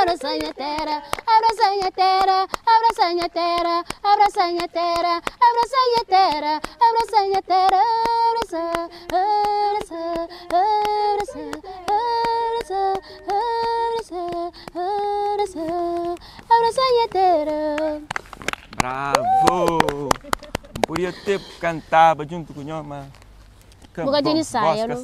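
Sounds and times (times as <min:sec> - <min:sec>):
woman singing: 0:00.0 - 0:18.1
hand claps: 0:00.0 - 0:21.2.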